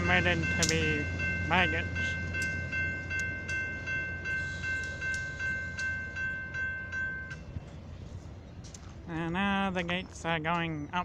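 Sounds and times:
railroad crossing bell ringing: 0.0s - 8.0s
train rumbling past: 0.0s - 11.0s.

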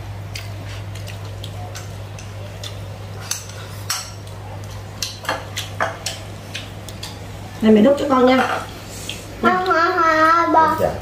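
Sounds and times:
chopsticks tapping plates: 0.3s - 7.3s.

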